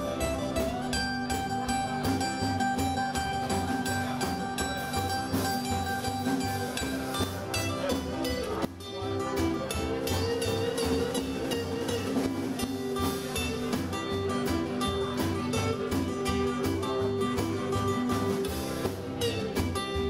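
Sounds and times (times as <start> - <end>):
drums on a steady beat: 0.0 - 20.0
live band playing: 0.0 - 20.0
strummed acoustic guitar: 0.0 - 20.0.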